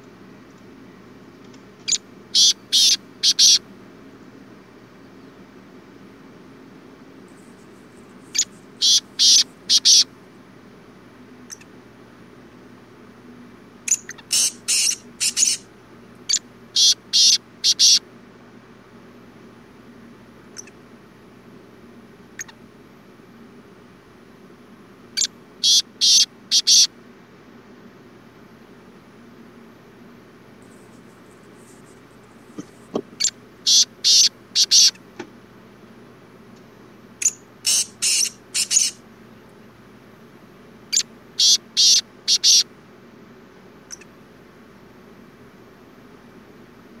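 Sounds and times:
bird chirps: 0:01.8 - 0:03.6, 0:08.3 - 0:10.1, 0:11.5 - 0:11.7, 0:13.9 - 0:15.6, 0:16.3 - 0:18.0, 0:20.6 - 0:20.8, 0:25.2 - 0:26.9, 0:32.6 - 0:35.0, 0:37.2 - 0:39.0, 0:40.9 - 0:42.6
francolin calling: 0:01.8 - 0:03.6, 0:07.3 - 0:10.1, 0:11.4 - 0:11.8, 0:13.9 - 0:18.1, 0:20.5 - 0:20.8, 0:22.3 - 0:22.6, 0:25.2 - 0:26.9, 0:32.6 - 0:35.0, 0:37.2 - 0:39.0, 0:40.9 - 0:42.7, 0:43.9 - 0:44.1.

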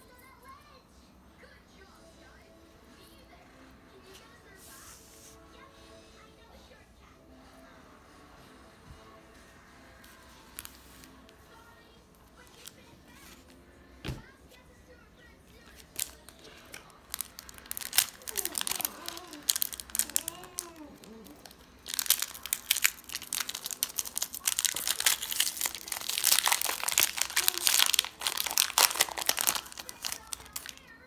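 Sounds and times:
foil wrapper crinkling and tearing: 0:15.6 - 0:30.9.

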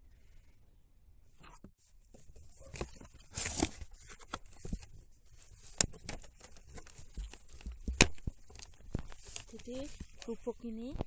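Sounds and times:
cardboard rustling and scraping: 0:01.4 - 0:11.0
small clicks and knocks: 0:05.6 - 0:11.0.

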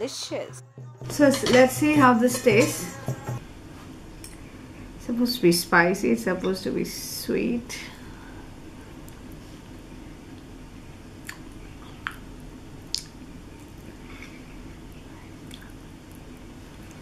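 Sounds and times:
low room hum: 0:00.0 - 0:17.0.

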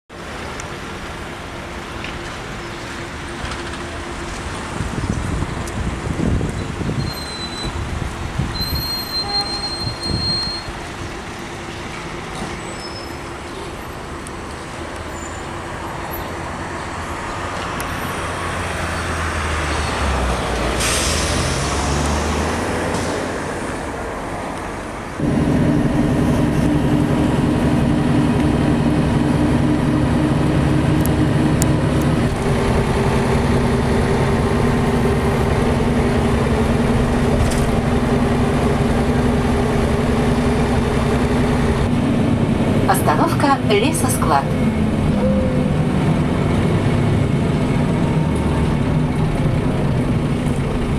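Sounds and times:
bus engine droning: 0:00.1 - 0:50.9
street traffic: 0:00.1 - 0:50.9
brief hiss: 0:20.8 - 0:22.2.

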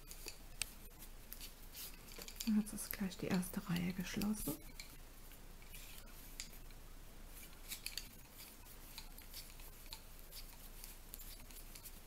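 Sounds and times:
knitting needles clicking: 0:00.0 - 0:05.0, 0:07.4 - 0:12.0.

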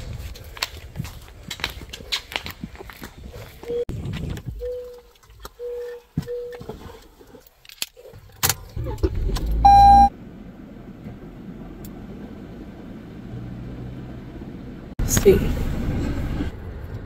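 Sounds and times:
car engine starting and running: 0:08.4 - 0:17.0.

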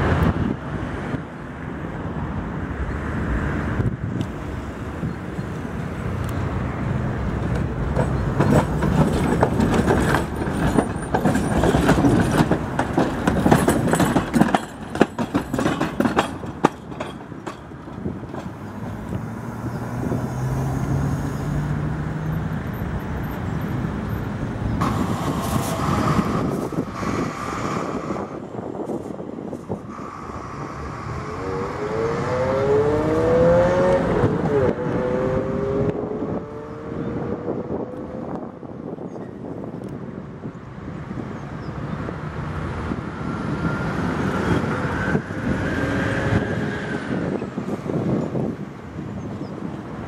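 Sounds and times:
tram wheels rumbling over rails: 0:04.2 - 0:32.4, 0:40.7 - 0:50.0.

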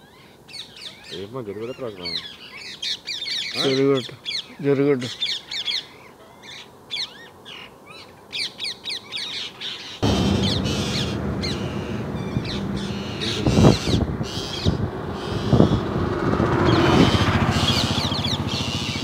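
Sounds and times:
parakeets screeching: 0:09.8 - 0:19.0
loud knocks: 0:10.0 - 0:16.2
steady low rumble: 0:10.0 - 0:19.0.

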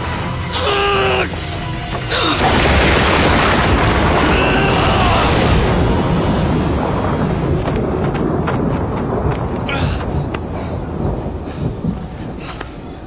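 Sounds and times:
dramatic music score: 0:00.0 - 0:11.7
loud explosion boom: 0:02.4 - 0:12.1.

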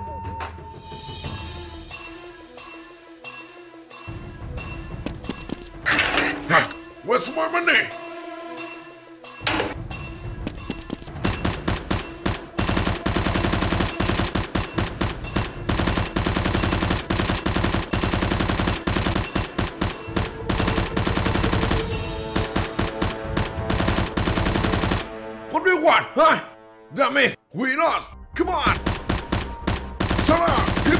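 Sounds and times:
automatic gunfire bursts: 0:11.2 - 0:25.1, 0:28.8 - 0:30.9.

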